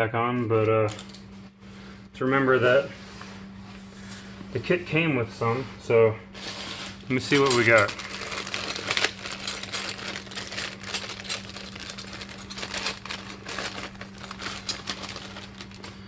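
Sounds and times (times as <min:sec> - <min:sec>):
steady low hum: 0:00.0 - 0:16.0
small metal parts clicking: 0:00.9 - 0:01.2, 0:07.3 - 0:15.9
packaging rustling: 0:06.4 - 0:16.0.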